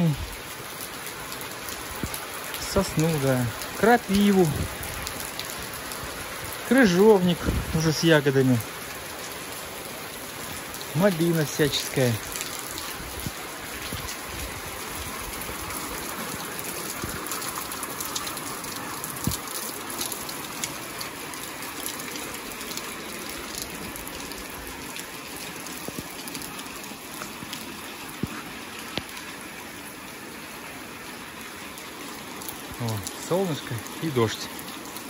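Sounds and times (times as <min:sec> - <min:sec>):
light rain falling: 0:00.0 - 0:35.0
raindrop taps: 0:01.9 - 0:03.0, 0:15.1 - 0:21.1, 0:25.0 - 0:26.5, 0:27.1 - 0:29.2.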